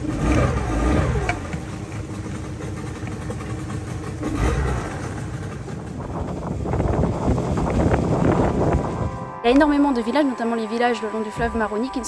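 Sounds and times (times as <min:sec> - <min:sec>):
outboard motor running: 0:00.0 - 0:09.1.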